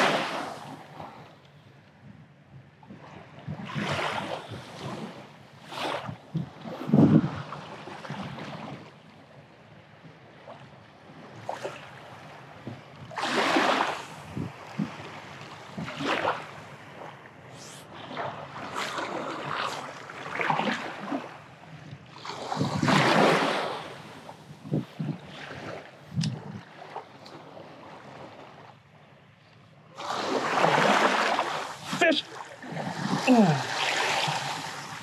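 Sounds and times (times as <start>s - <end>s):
small waves washing on sand: 0.0s - 1.3s, 3.0s - 9.0s, 13.1s - 21.5s, 22.1s - 28.7s, 29.9s - 35.0s.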